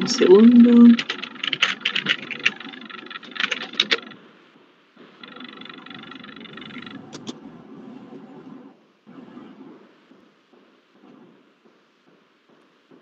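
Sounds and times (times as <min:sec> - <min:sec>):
steady background hiss: 0:00.0 - 0:13.0
keyboard and mouse clicks: 0:00.9 - 0:04.2, 0:05.2 - 0:07.4.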